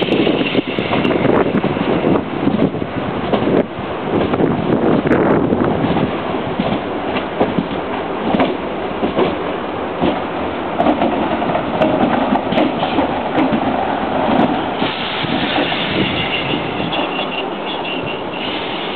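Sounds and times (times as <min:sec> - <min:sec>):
train wheels knocking over rail joints: 0:05.8 - 0:17.4.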